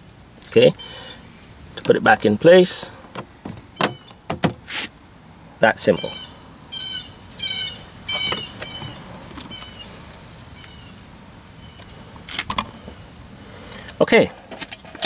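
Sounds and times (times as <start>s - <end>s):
high-pitched animal calls: 0.8s - 1.2s, 6.0s - 11.0s.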